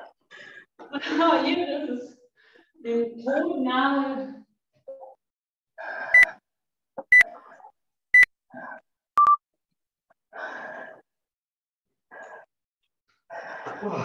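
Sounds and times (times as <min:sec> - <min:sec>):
short high beeps: 0:09.2 - 0:09.4.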